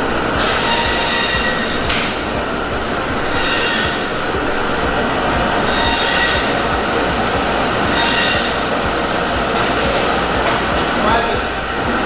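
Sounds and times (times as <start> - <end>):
high machine squeal: 0.0 - 10.4
machinery clattering: 0.0 - 12.0.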